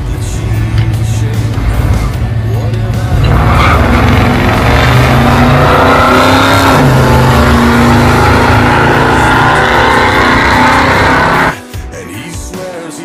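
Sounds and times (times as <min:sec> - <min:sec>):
drag racing car accelerating: 0:01.4 - 0:11.6.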